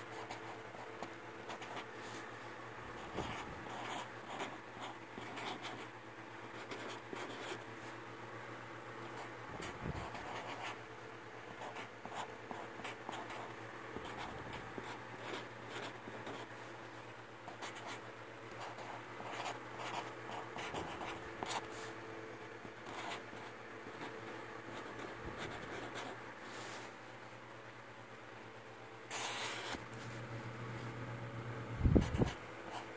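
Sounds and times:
steady low hum: 0:00.0 - 0:32.9
marker scratching on cardboard: 0:29.1 - 0:29.8.

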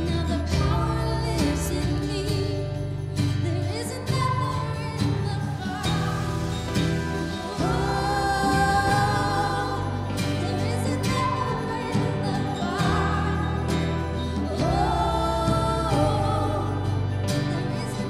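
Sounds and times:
band with electric bass: 0:00.0 - 0:18.0
woman singing long notes: 0:07.4 - 0:18.0.

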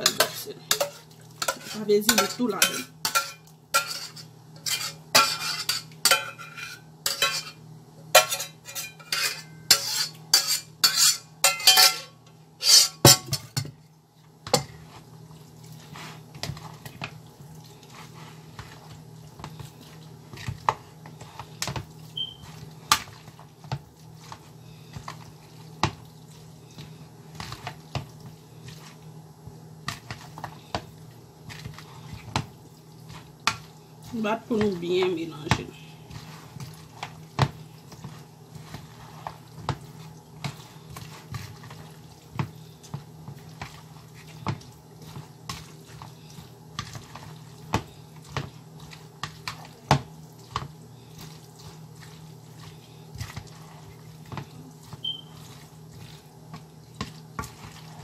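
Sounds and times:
utensil clinking on dish: 0:00.0 - 0:13.7
spoon stirring salad in bowl: 0:00.0 - 0:13.8, 0:14.4 - 0:58.0
low steady hum: 0:00.0 - 0:58.0.

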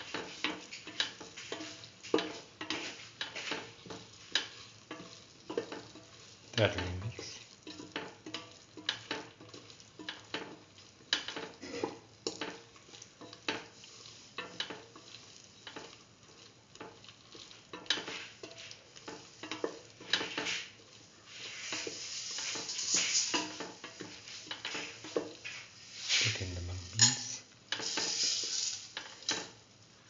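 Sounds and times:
spatula scraping metal pan: 0:00.0 - 0:06.4, 0:11.2 - 0:16.0, 0:17.0 - 0:26.3, 0:26.9 - 0:29.5
food sizzling in oil: 0:00.0 - 0:30.0.

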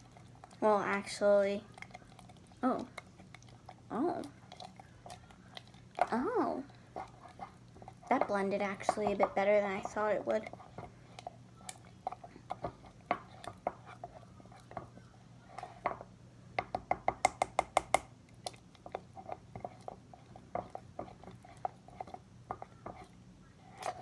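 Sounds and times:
spoon stirring batter in mug: 0:00.0 - 0:24.0
spoon tapping mug: 0:16.6 - 0:18.1.

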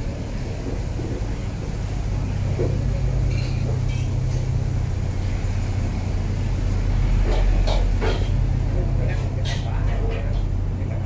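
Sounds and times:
low mechanical rumble: 0:00.0 - 0:11.0.

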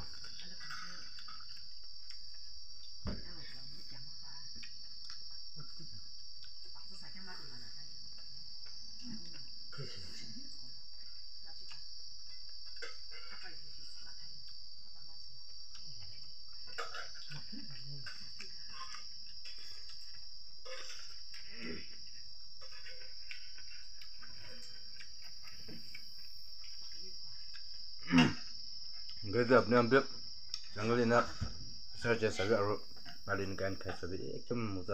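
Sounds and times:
chewing: 0:00.0 - 0:02.5, 0:15.6 - 0:29.2
insects chirring: 0:00.0 - 0:34.9.

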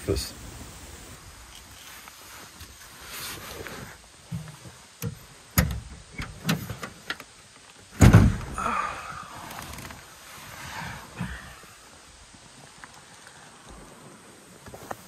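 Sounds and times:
soft rustling: 0:00.5 - 0:04.9, 0:11.8 - 0:15.0
tailgate thudding open: 0:05.0 - 0:06.9, 0:07.9 - 0:08.6.

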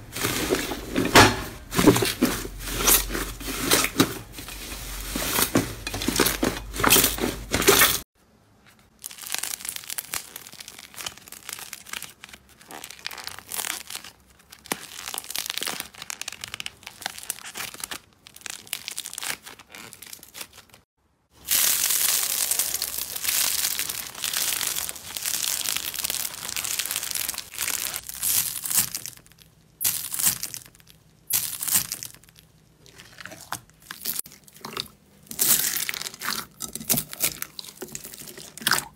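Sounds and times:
slime squeezed by hand: 0:21.4 - 0:29.0.

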